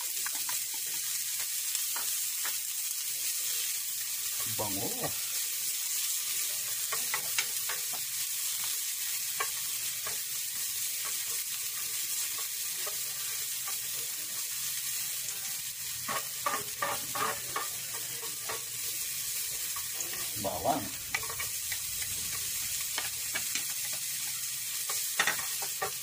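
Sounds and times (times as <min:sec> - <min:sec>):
onion sizzling in a frying pan: 0:00.0 - 0:26.0
spatula scraping a pan: 0:15.9 - 0:26.0.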